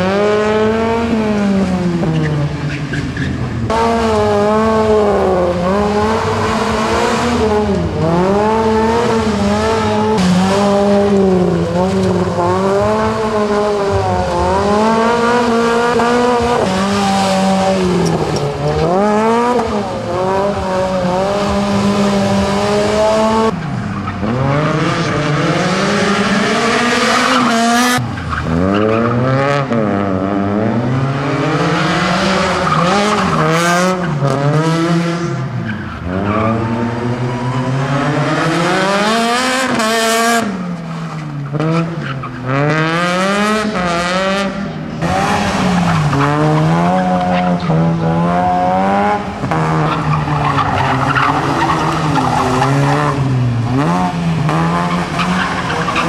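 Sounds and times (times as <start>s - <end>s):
rally car engine revving: 0.0s - 56.0s
tyres squealing and skidding: 1.9s - 4.6s, 22.5s - 29.7s, 30.8s - 34.2s, 35.2s - 40.3s, 40.9s - 42.7s, 45.0s - 56.0s.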